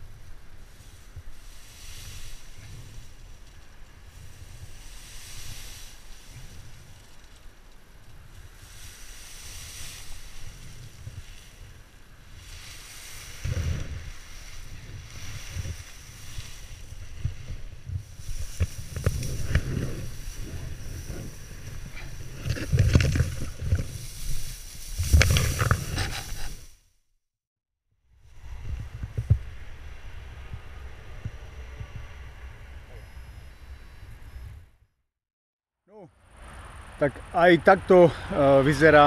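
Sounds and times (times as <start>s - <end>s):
dry stalks rustling and crackling: 0.0s - 26.8s
low thumps on microphone: 28.6s - 29.6s.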